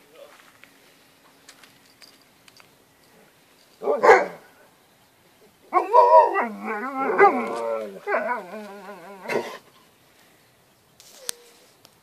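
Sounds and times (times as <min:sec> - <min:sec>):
dog barking: 0:03.8 - 0:04.4
dog howling: 0:05.7 - 0:09.6.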